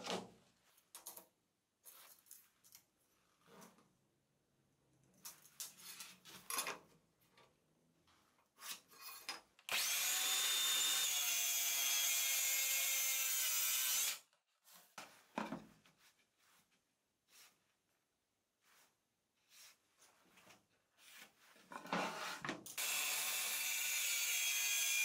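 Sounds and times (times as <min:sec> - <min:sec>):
circular saw cutting plywood: 0:09.7 - 0:14.2, 0:21.9 - 0:25.0
scraping and handling on wood: 0:14.6 - 0:16.9, 0:19.6 - 0:22.7.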